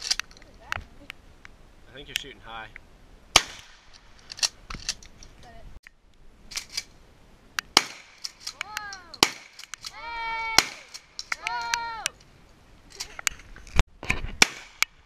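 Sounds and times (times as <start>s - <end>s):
shotgun shots: 3.3s - 4.0s, 7.7s - 8.5s, 9.2s - 9.7s, 10.5s - 11.1s, 14.4s - 14.8s
sharp cracks: 3.3s - 5.1s, 7.6s - 12.2s, 12.9s - 15.0s.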